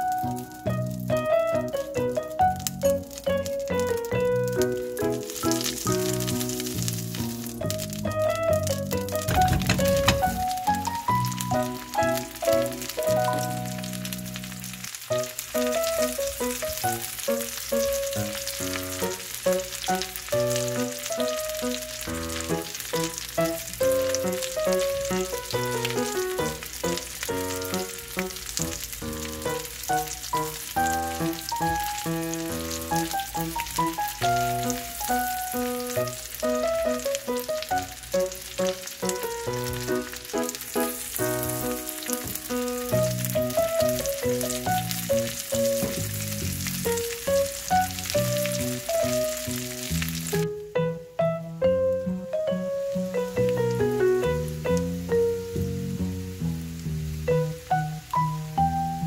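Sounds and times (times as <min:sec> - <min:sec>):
potatoes sizzling in butter: 0:00.0 - 0:50.8, 0:51.8 - 0:59.0.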